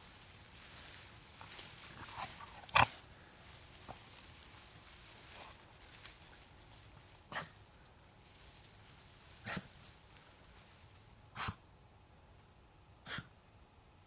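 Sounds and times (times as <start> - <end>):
dog snorting: 1.9 - 3.0, 9.4 - 9.7.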